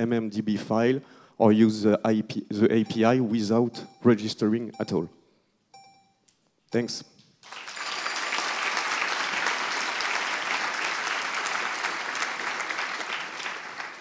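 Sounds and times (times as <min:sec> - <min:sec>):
audience applauding: 0:07.4 - 0:14.0.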